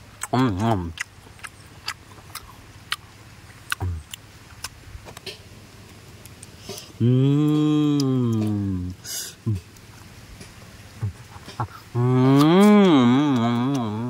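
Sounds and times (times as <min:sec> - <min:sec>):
wet mouth clicks and smacks: 0:03.7 - 0:05.4
person humming mm: 0:06.7 - 0:09.7, 0:11.0 - 0:14.0
person groaning: 0:07.0 - 0:09.6, 0:11.9 - 0:14.0.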